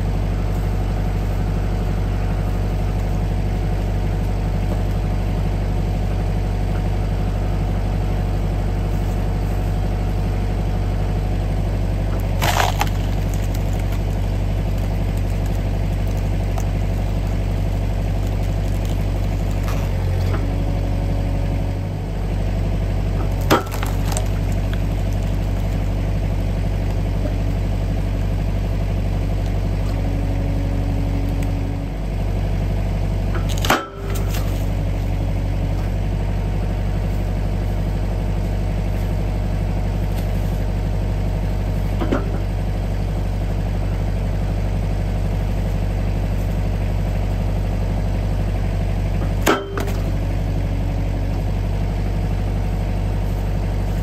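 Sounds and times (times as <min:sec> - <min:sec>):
tractor engine running: 0:00.0 - 0:54.0
wood cracking as it splits: 0:11.8 - 0:21.8, 0:23.0 - 0:28.3, 0:33.2 - 0:34.9, 0:49.2 - 0:51.8.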